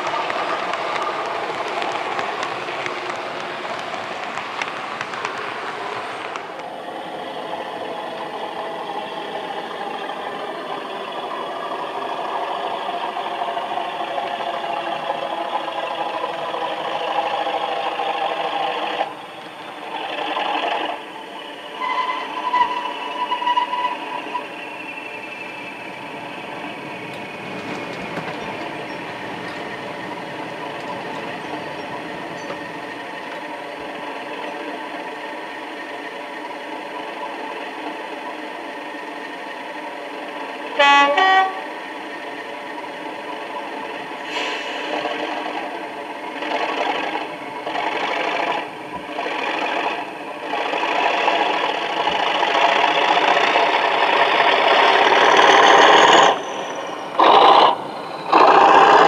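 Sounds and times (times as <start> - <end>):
model diesel locomotive engine: 0.0 - 59.0
locomotive horn: 21.7 - 24.5, 40.7 - 41.8
two-tone horn blast: 40.8 - 41.7.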